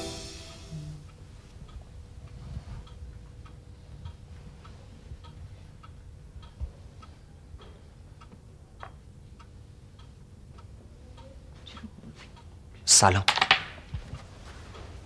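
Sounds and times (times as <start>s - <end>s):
clock ticking: 5.1s - 11.3s
chess pieces set down on board: 13.3s - 13.8s.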